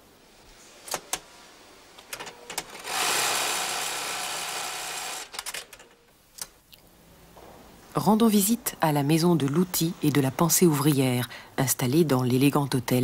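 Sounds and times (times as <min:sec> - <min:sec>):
sewing machine running: 0:02.8 - 0:05.3.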